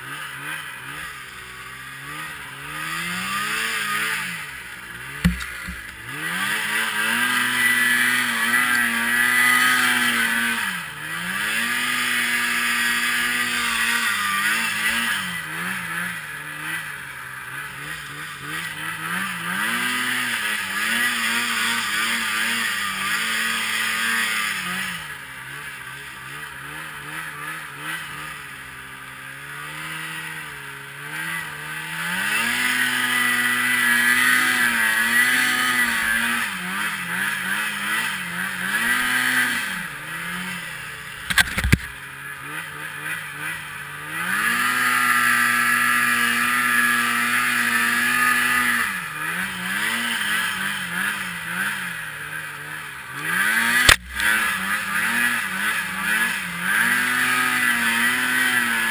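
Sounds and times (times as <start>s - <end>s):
snowmobile engine revving: 0.0s - 58.9s
sharp knock: 5.2s - 5.9s.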